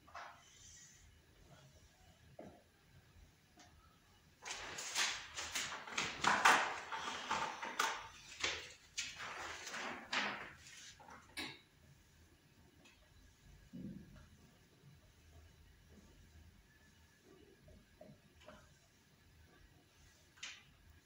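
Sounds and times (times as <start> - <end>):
rustling and scraping handling: 4.5 - 11.3.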